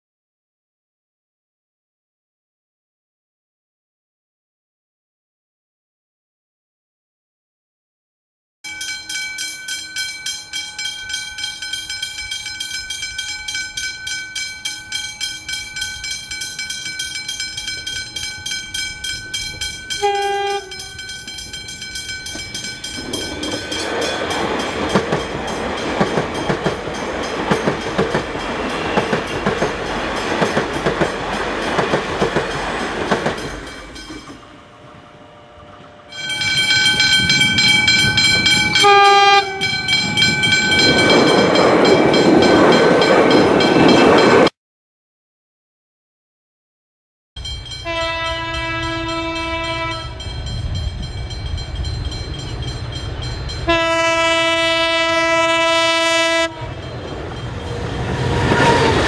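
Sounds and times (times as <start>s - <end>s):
train wheels rushing and rattling: 20.7s - 34.4s, 39.5s - 44.5s, 56.8s - 59.0s.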